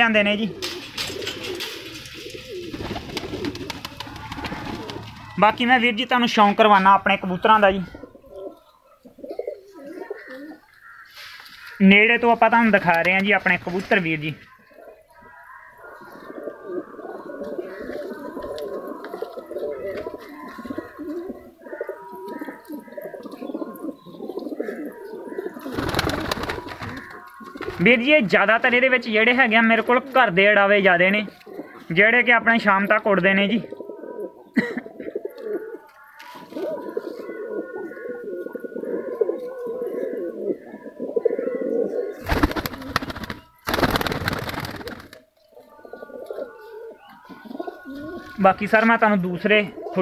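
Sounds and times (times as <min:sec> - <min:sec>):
pigeons cooing: 0:00.0 - 0:11.8, 0:12.6 - 0:50.0
loud rustling bursts: 0:00.8 - 0:05.4, 0:42.2 - 0:45.2.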